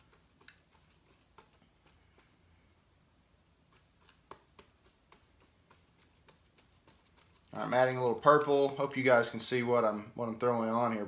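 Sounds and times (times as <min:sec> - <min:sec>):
paintbrush ticks on plastic palette: 0:00.0 - 0:02.6, 0:03.6 - 0:08.9.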